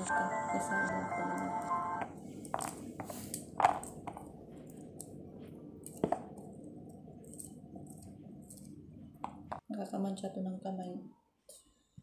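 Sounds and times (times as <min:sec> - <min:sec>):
kitchen exhaust fan hum: 0:00.0 - 0:12.0
pomegranate rind cracking: 0:02.5 - 0:05.2.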